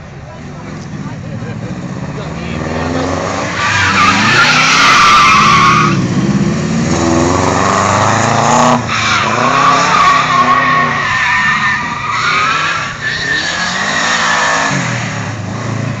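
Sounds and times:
car engine revving: 0:00.5 - 0:16.0
tyres squealing: 0:03.5 - 0:06.0, 0:08.9 - 0:14.6.

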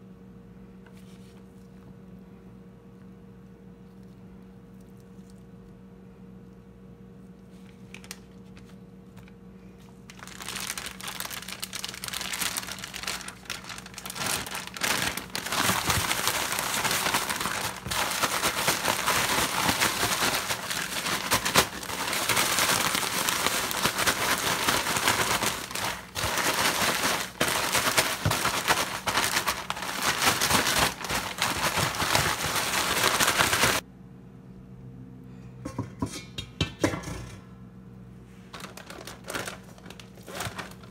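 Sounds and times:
plastic bag crinkling and rustling: 0:07.4 - 0:33.8, 0:38.4 - 0:40.9.

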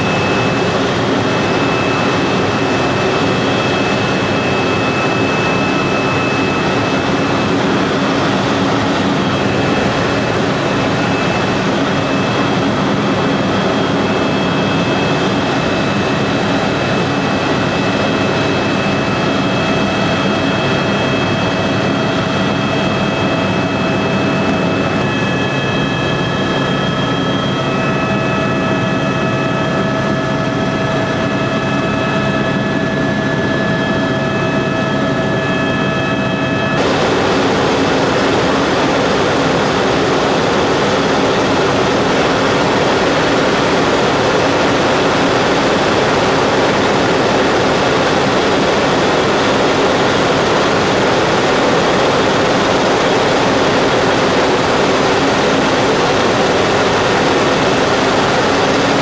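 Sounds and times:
helicopter turbine whine: 0:00.0 - 0:59.0
even rushing noise: 0:36.8 - 0:45.2.

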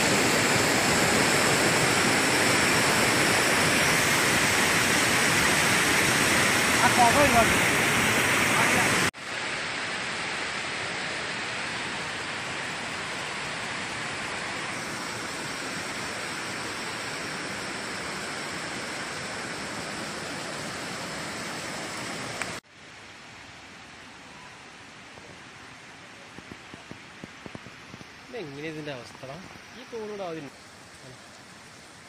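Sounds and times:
waterfall rushing: 0:00.0 - 0:22.6
quiet outdoor background: 0:22.4 - 0:32.0.

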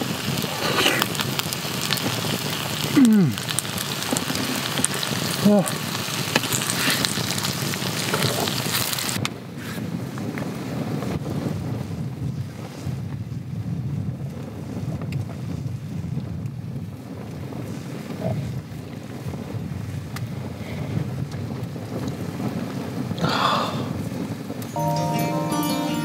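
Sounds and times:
chicken sizzling in a pan: 0:00.0 - 0:09.2
wind rumble on microphone: 0:00.0 - 0:24.7.

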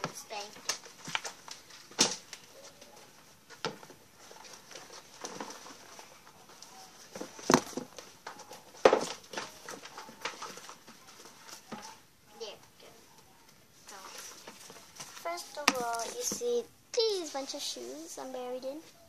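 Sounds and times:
rustling: 0:00.0 - 0:19.0
shoes dropped on floor: 0:07.2 - 0:08.0.

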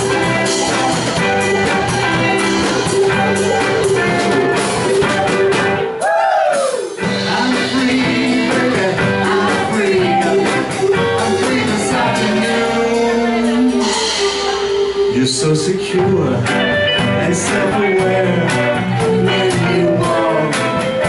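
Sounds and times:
live rock band playing: 0:00.0 - 0:21.0
person singing: 0:06.1 - 0:21.0.

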